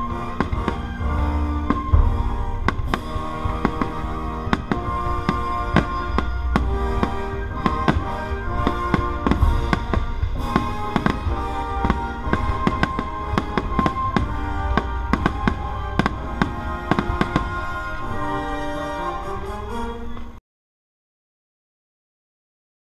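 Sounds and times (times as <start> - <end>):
deep rumble: 0.0 - 18.2
fireworks bangs and crackles: 0.0 - 19.6
orchestral music: 0.0 - 20.4.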